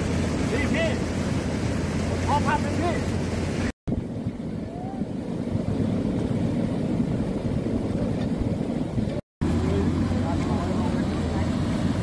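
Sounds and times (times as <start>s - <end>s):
water rushing over a weir: 0.0s - 12.0s
wind buffeting microphone: 0.0s - 12.0s.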